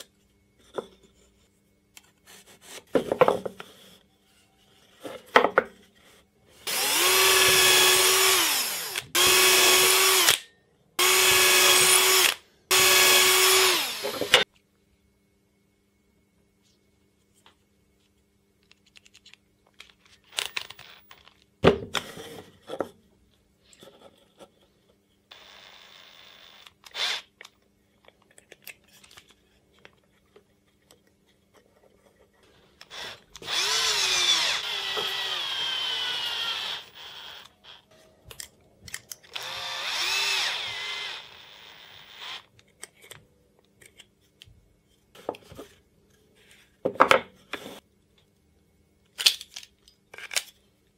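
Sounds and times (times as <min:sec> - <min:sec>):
wooden blocks knocking and clattering: 0:02.9 - 0:03.6, 0:05.0 - 0:05.8, 0:46.8 - 0:47.4
cordless drill motor: 0:06.6 - 0:10.4, 0:11.0 - 0:14.4, 0:20.3 - 0:21.2, 0:25.3 - 0:27.3, 0:32.8 - 0:37.8, 0:39.3 - 0:42.5.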